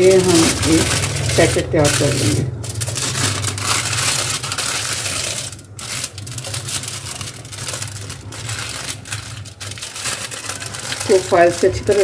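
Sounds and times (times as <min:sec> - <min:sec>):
aluminium foil crinkling: 0:00.0 - 0:12.0.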